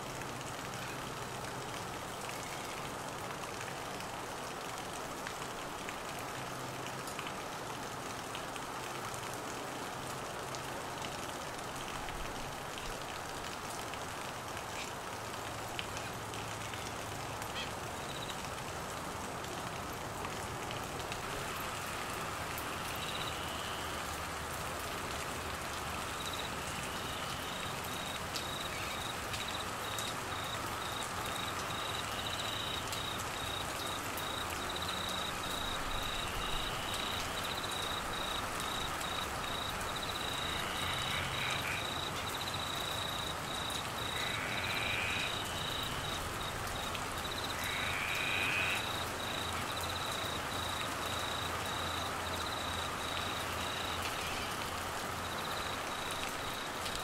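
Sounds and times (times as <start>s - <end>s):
heavy rain on foliage: 0.0s - 57.0s.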